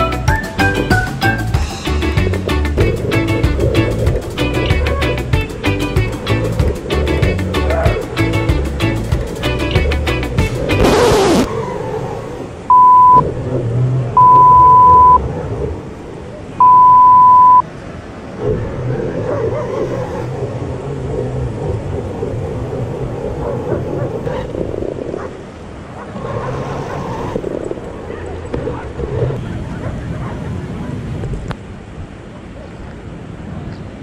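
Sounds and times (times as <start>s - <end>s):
electronic beeps: 12.7s - 13.2s, 14.2s - 15.2s, 16.6s - 17.6s.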